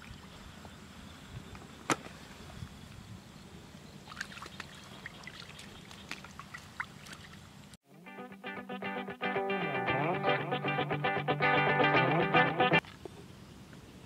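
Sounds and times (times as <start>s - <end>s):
splashing in muddy water: 4.1s - 7.5s.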